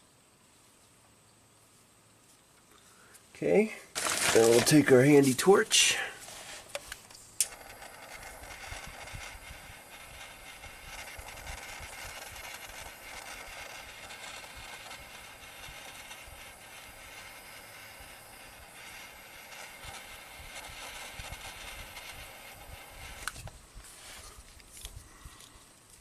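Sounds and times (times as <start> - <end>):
gas torch flame hissing: 4.2 - 24.3.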